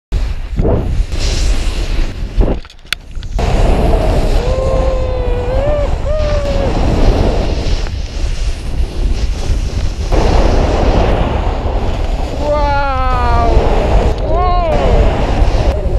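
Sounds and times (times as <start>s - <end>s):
wind buffeting microphone: 0.5s - 15.9s
person calling out: 4.4s - 6.8s, 12.4s - 13.6s, 14.2s - 15.1s.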